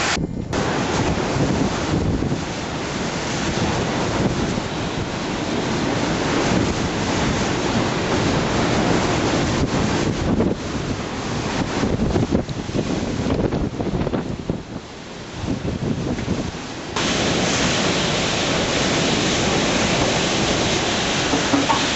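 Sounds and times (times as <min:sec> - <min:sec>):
heavy rain: 0:00.0 - 0:21.9
strong wind gusting on microphone: 0:00.0 - 0:21.9.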